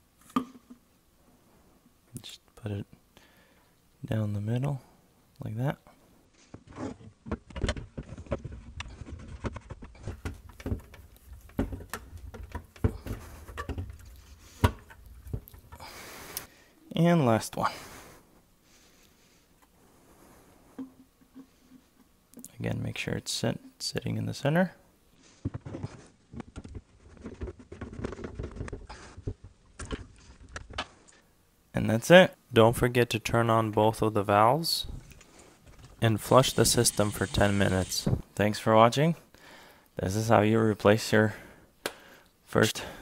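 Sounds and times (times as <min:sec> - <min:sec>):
plastic threads scraping: 0:35.0 - 0:38.3.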